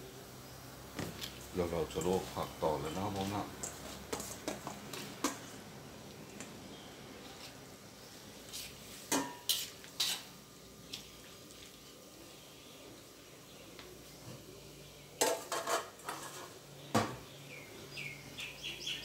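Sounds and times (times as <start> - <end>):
low steady hiss: 0.0 - 19.0.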